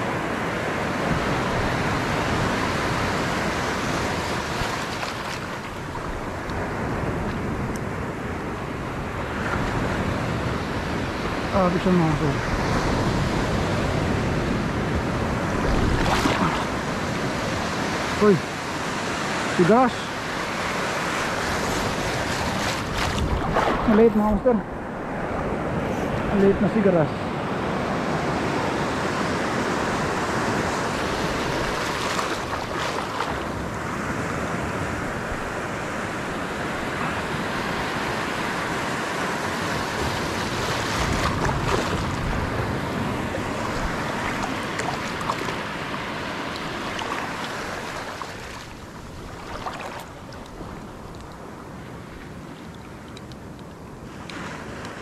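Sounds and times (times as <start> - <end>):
seawater washing over reef: 1.1 - 6.5, 15.3 - 18.3, 18.9 - 24.5, 29.7 - 33.9, 35.1 - 53.3
surf breaking: 2.4 - 6.3, 21.2 - 24.7, 30.1 - 33.6, 39.8 - 51.0.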